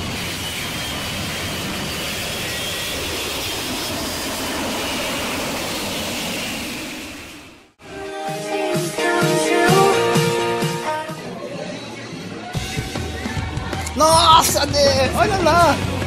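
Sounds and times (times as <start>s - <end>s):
jet engine noise: 0.0s - 7.8s.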